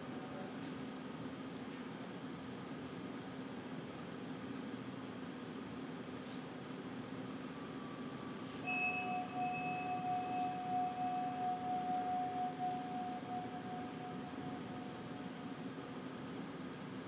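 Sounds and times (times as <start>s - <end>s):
steady low hum: 0.0s - 17.0s
fainter higher tone: 7.2s - 16.2s
sustained pure tone: 7.2s - 16.3s.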